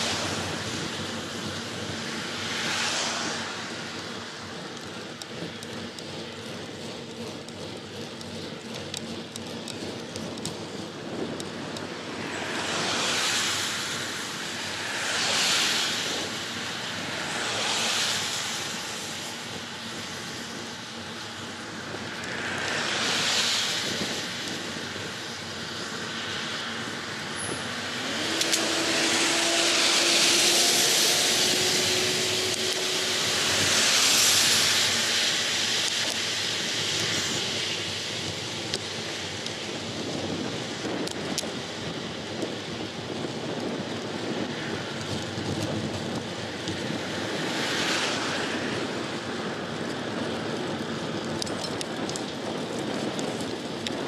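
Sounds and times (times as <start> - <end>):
wind and tyre noise: 0.0 - 54.0
vehicle passing by: 2.2 - 4.4, 27.2 - 35.7.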